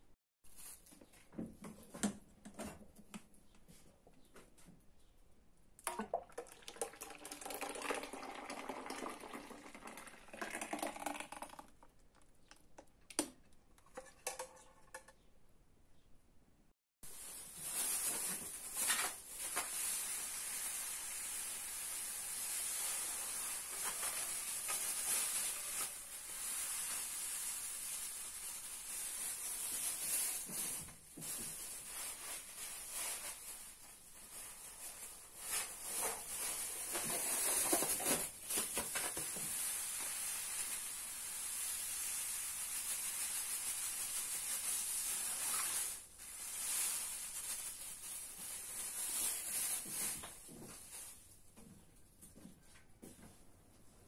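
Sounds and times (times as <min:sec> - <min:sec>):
sugar pouring into a pot: 0:06.3 - 0:11.8.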